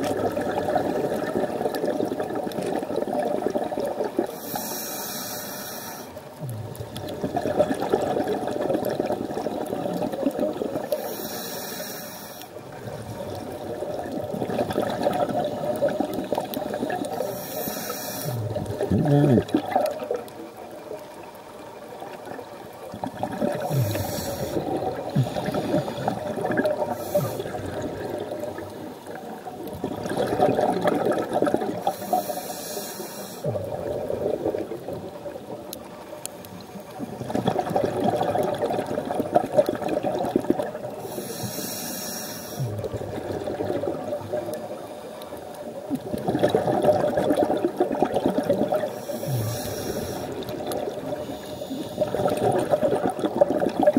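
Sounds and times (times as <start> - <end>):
exhaled air bubbling: 0.0 - 4.8, 6.1 - 11.8, 12.4 - 32.6, 33.2 - 53.9
regulator inhale hiss: 4.3 - 6.3, 10.9 - 12.6, 17.0 - 18.6, 23.6 - 27.8, 31.8 - 33.5, 41.0 - 42.9, 48.9 - 52.2.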